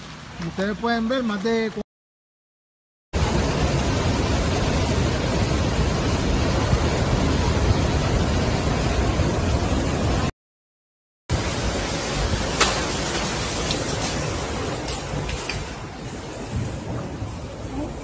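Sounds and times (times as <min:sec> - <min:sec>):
floodwater rushing through spillway: 0:03.2 - 0:10.3, 0:11.3 - 0:18.0
storm wind and rain: 0:03.2 - 0:10.3, 0:11.3 - 0:18.0.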